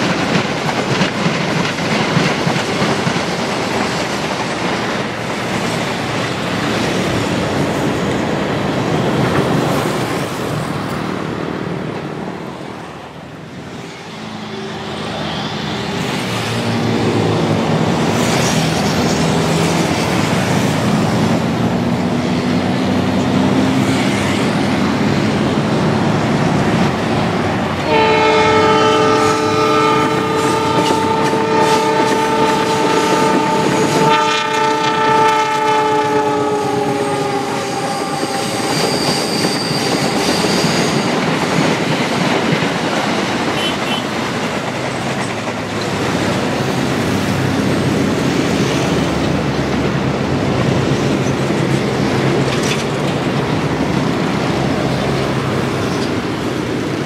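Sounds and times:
wheels clattering on rails: 0.0 - 11.2, 36.8 - 57.0
diesel locomotive engine: 0.0 - 57.0
multi-tone train horn: 27.8 - 40.8, 43.5 - 44.2.

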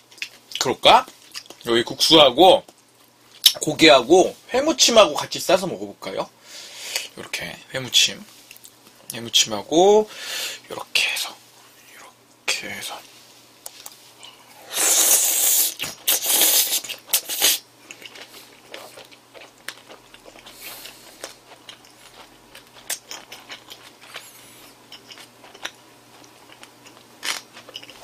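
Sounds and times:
chewing with crunches: 0.0 - 1.7, 15.6 - 28.0
person slurping noodles: 14.6 - 17.6.

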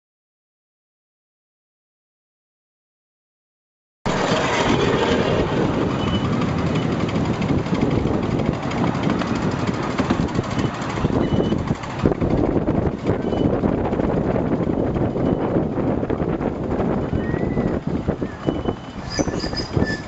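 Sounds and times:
miniature train rumbling: 4.1 - 20.0
wheels clattering on rails: 4.1 - 20.0.

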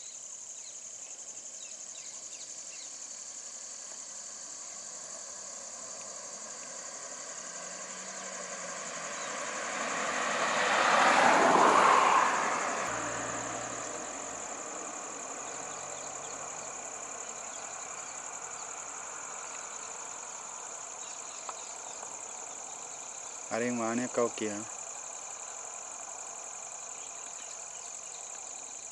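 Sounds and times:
insects droning: 0.0 - 28.9
car driving past: 4.9 - 23.7
van engine idling: 12.9 - 19.4.

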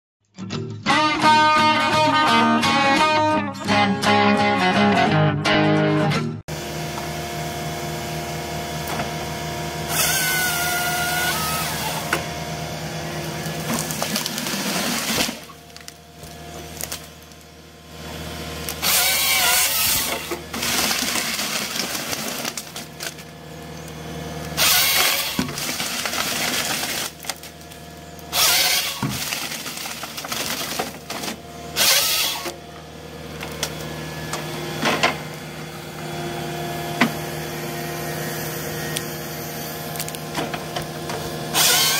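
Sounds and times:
diesel engine running: 6.4 - 41.9
chain saw cutting tree trunks: 9.9 - 12.4, 13.3 - 17.1, 18.6 - 23.4, 24.5 - 32.6, 41.4 - 41.9.

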